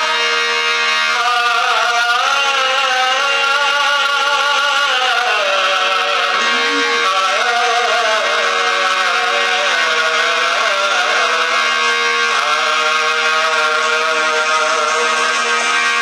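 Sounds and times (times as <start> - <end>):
sustained drone tone: 4.7 - 16.0
man singing held notes: 6.3 - 8.1.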